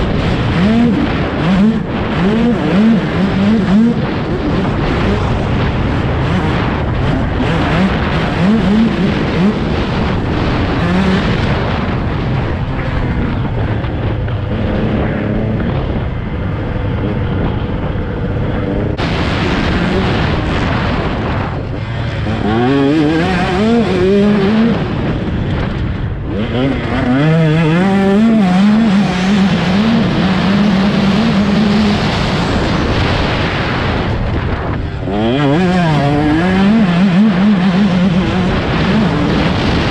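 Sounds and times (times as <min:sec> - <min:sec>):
dirt bike engine revving: 0:00.0 - 0:39.9
wind rush on microphone: 0:00.0 - 0:39.9.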